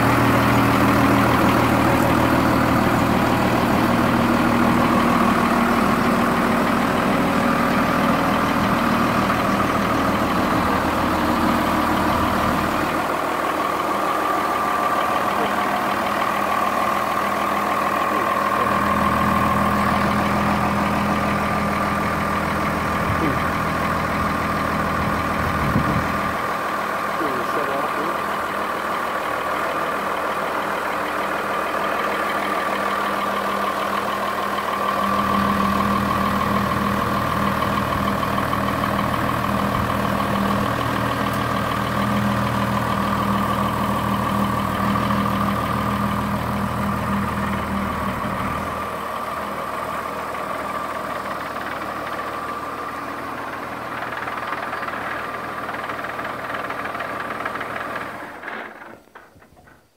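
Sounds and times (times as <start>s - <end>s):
tractor diesel engine running: 0.0s - 59.9s
deep loud rumble: 22.8s - 26.5s.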